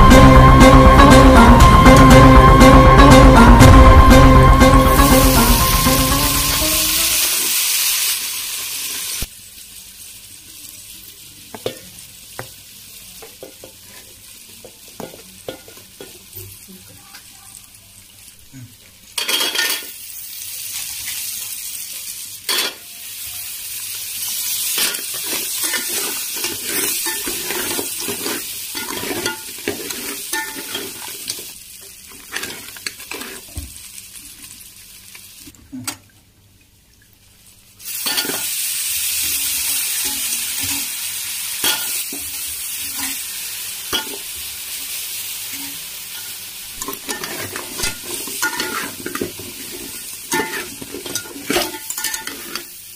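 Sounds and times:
food sizzling in hot oil: 4.8s - 35.6s, 37.3s - 52.9s
spatula scraping pan: 24.8s - 31.3s, 32.1s - 33.5s, 46.9s - 52.7s.

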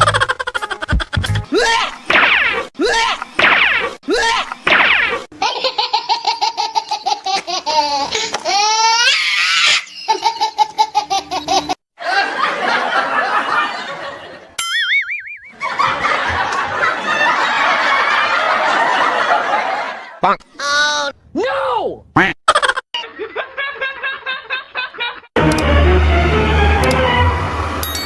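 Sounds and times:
rhythmic laughter bursts: 0.0s - 2.1s
crowd laughing: 10.0s - 14.6s, 15.5s - 20.2s, 23.0s - 25.4s
warbling comic sound effect: 14.6s - 15.6s.

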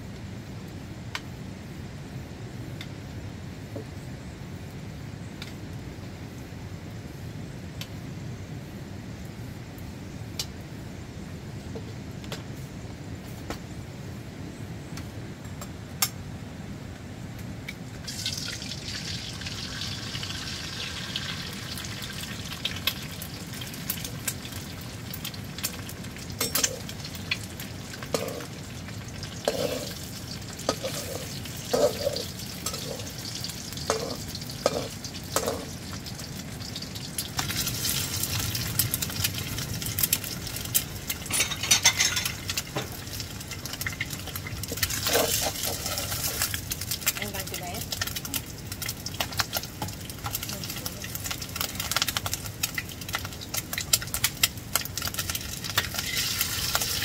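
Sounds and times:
food sizzling in a pan: 18.0s - 57.0s.

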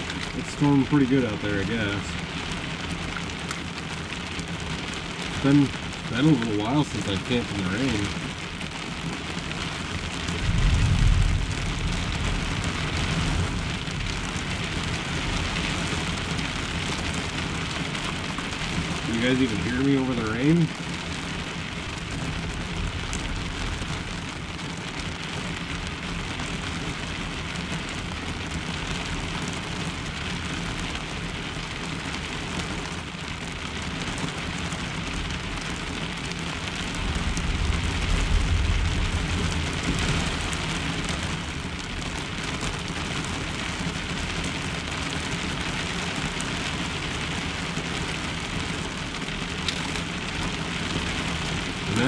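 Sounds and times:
heavy rain on a truck shell: 0.0s - 52.0s
thunder rumbling: 10.2s - 16.3s, 36.9s - 42.0s.

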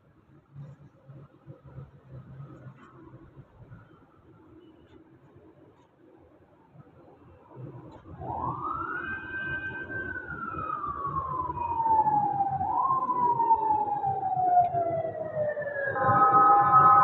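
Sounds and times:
siren wailing: 8.0s - 17.0s.

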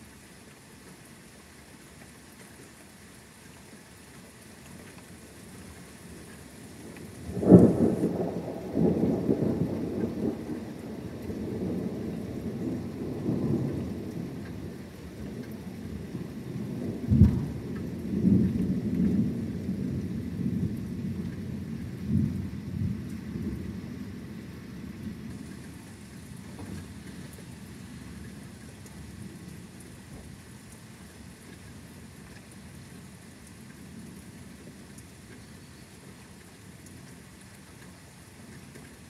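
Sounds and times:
rain falling: 0.0s - 39.0s
rolling thunder: 7.2s - 14.4s, 15.9s - 24.4s
thunder clap: 17.1s - 17.8s.

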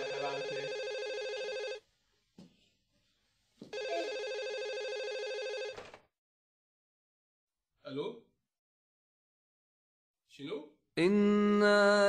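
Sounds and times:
telephone ringing electronically: 0.0s - 1.8s, 3.7s - 5.8s.

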